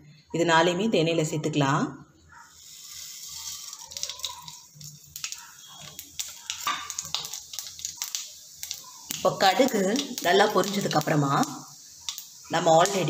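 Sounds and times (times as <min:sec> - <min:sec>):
spices sizzling in hot oil: 0:02.4 - 0:13.0
mustard seeds popping: 0:02.9 - 0:13.0.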